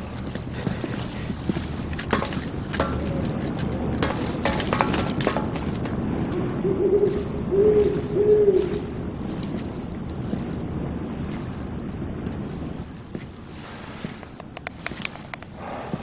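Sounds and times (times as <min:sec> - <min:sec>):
low night background: 0:00.0 - 0:16.0
owl hooting: 0:06.4 - 0:09.0.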